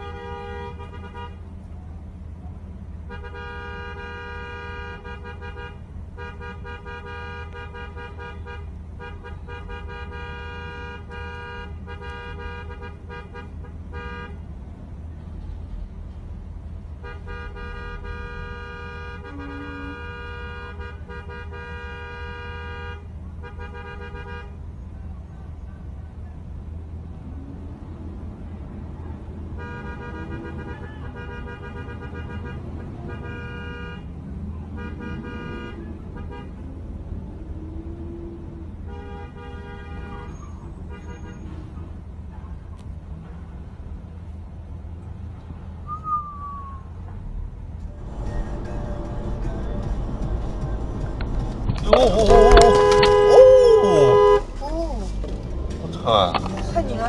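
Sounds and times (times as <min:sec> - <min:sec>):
car horn honking: 0:00.0 - 0:01.6, 0:03.0 - 0:14.4, 0:17.0 - 0:24.8, 0:29.6 - 0:34.1, 0:34.8 - 0:36.6, 0:38.9 - 0:41.6, 0:47.9 - 0:57.0
low traffic rumble: 0:00.0 - 0:57.0
faint shouting voices: 0:51.8 - 0:57.0.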